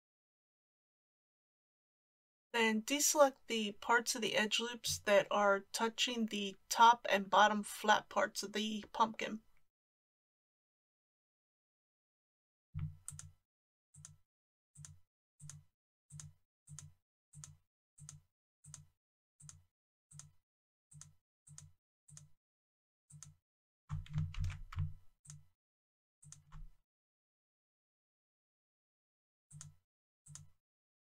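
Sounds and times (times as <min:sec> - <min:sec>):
computer mouse clicking: 0:12.8 - 0:13.4, 0:14.0 - 0:14.2, 0:14.8 - 0:22.4, 0:23.1 - 0:25.5, 0:26.2 - 0:26.7, 0:29.5 - 0:30.6.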